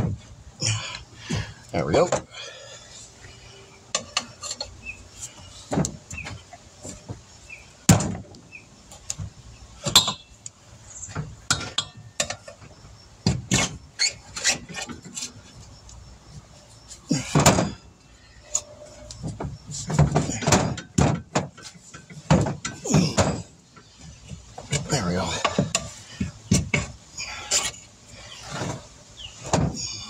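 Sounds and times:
metal tool scraping wheel rim: 3.9 - 5.4, 13.5 - 15.6
rubber tire squeaks: 12.5 - 15.8, 22.6 - 30.0.

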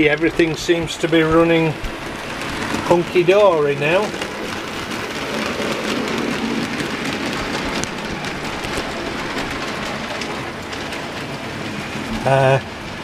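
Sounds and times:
clicks over rail joints: 0.0 - 13.0
model train wheels rattling: 0.0 - 13.0.

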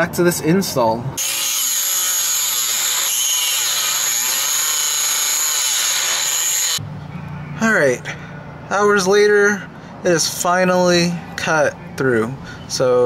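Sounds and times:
rotary tool cutting metal: 1.2 - 6.8.

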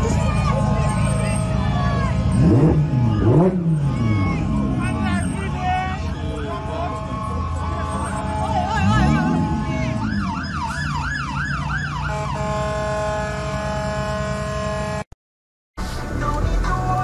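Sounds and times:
engine revving: 0.0 - 6.1, 7.0 - 15.0
emergency vehicle siren wailing: 0.0 - 14.8.

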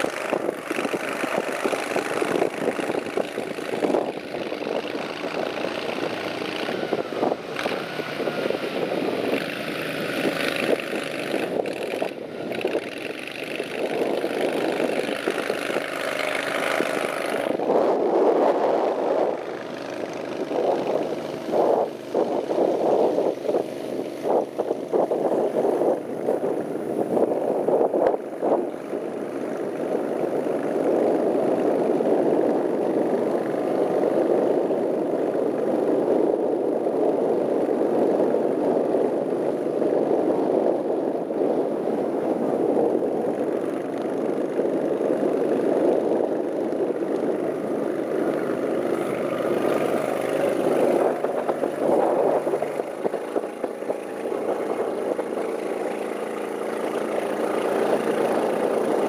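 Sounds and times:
boat motor running: 0.0 - 34.4, 42.2 - 59.0.

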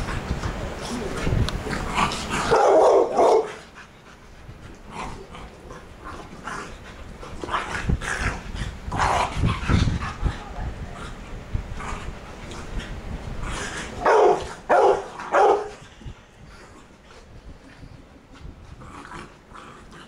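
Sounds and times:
dogs barking and yipping: 2.2 - 3.8, 14.0 - 15.8.

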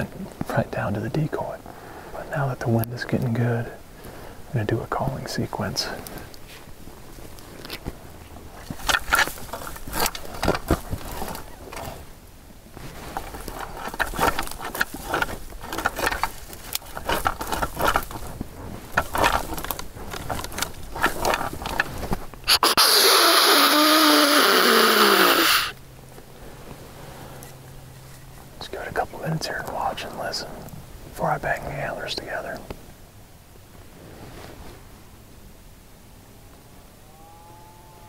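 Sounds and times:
antlers rattling and clattering: 7.5 - 12.1, 12.8 - 22.5
deer snort-wheeze call: 22.5 - 25.8.

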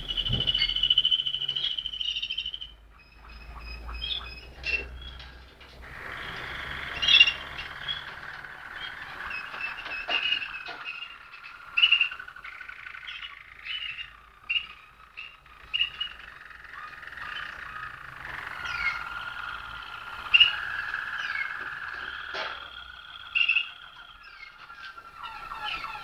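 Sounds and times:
canaries singing low rolling trills: 0.0 - 26.0.

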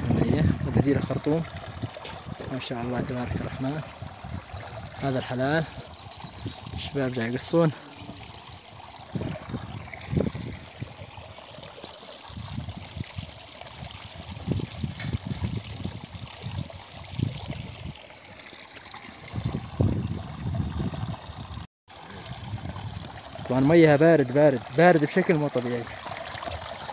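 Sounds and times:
spring water trickling: 0.0 - 26.9.

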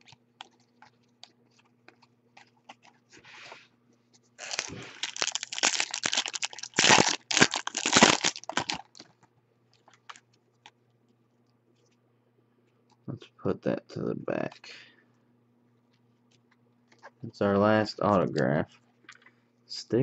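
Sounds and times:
foil wrapper crinkling: 4.4 - 9.2.

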